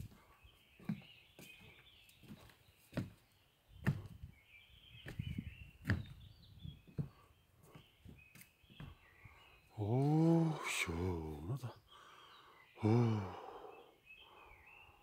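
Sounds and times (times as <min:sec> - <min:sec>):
footsteps on wooden stairs: 0:00.0 - 0:03.2, 0:03.8 - 0:04.3, 0:05.0 - 0:09.0
birds chirping: 0:00.0 - 0:15.0.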